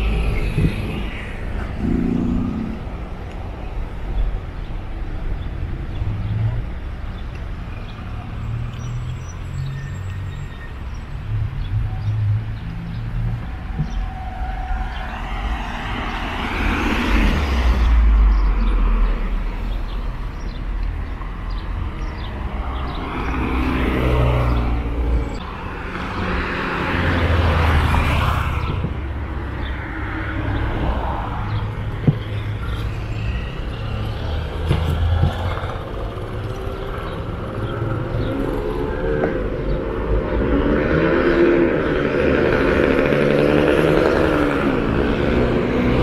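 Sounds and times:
cars passing: 0.0s - 46.0s.

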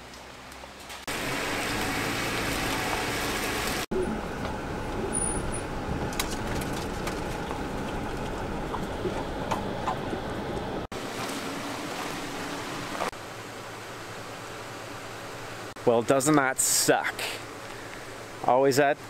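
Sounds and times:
tire rolling over wet leaves: 0.0s - 15.7s
engine and road noise: 0.0s - 19.0s
clicks and knocks over bumps: 6.0s - 10.8s.

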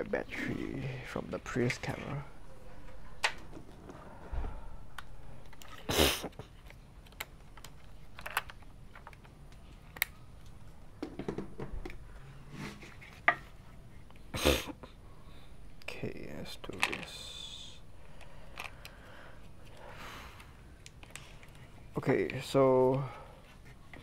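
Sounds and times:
scrape: 12.4s - 13.2s.

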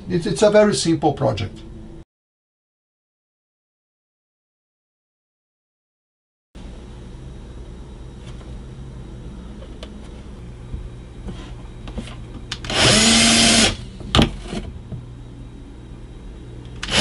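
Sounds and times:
cordless drill whining: 12.5s - 13.8s, 16.8s - 17.0s.

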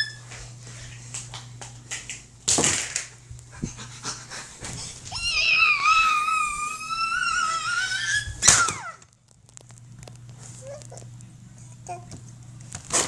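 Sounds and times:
high-pitched wavering whine: 5.1s - 9.1s.

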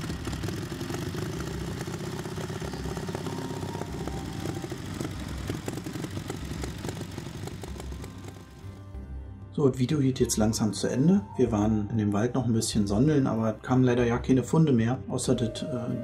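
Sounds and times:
motorcycle engine running: 0.0s - 9.2s.

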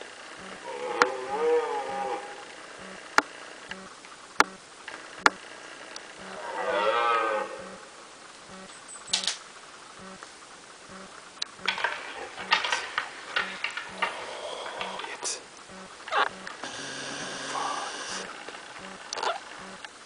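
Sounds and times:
deer stag roaring: 0.0s - 3.2s, 6.1s - 8.0s, 11.7s - 15.4s, 16.1s - 19.7s
crackling noises: 0.0s - 20.0s
sharp clicks: 2.8s - 6.3s, 8.5s - 10.3s, 10.9s - 20.0s.

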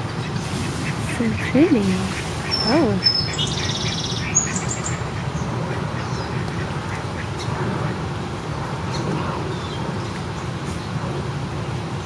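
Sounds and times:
outdoor background noise: 0.0s - 12.0s
ducks quacking: 0.2s - 8.0s.

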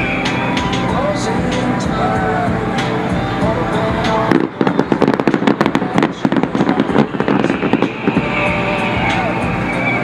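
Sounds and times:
fireworks bangs and crackles: 2.6s - 9.7s.

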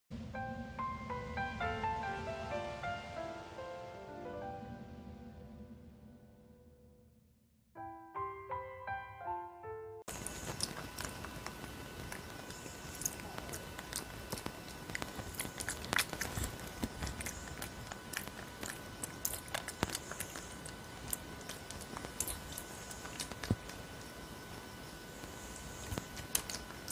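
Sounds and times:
piano phrase: 0.2s - 7.2s, 7.8s - 10.1s
crisp crunches: 10.1s - 26.9s
monkey chewing fruit: 10.1s - 26.9s.

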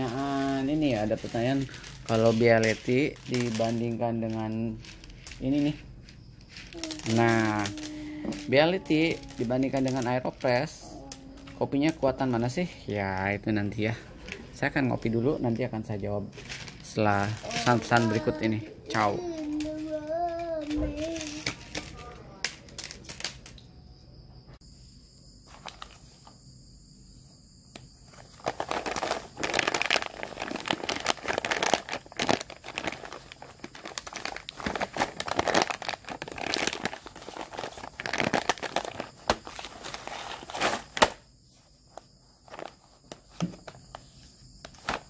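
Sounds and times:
foil bag crinkling: 0.0s - 5.8s, 6.4s - 13.2s, 16.3s - 23.4s, 25.5s - 26.2s, 28.1s - 41.2s, 41.8s - 43.8s.

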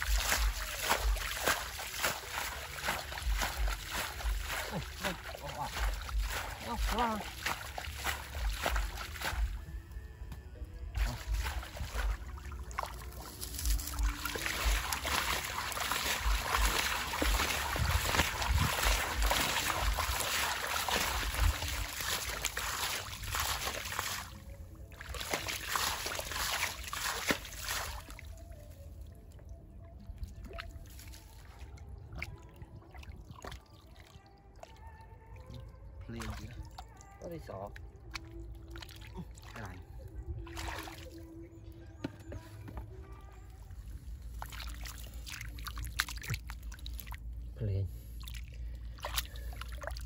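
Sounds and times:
water trickling and sloshing: 0.0s - 50.0s
small splashes and clicks: 11.1s - 24.4s, 25.0s - 28.3s, 44.3s - 47.3s, 48.2s - 50.0s.

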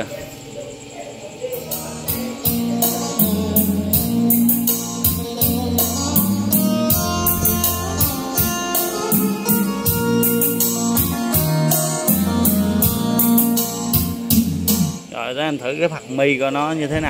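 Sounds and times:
music with heavy bass beat: 1.6s - 15.1s.

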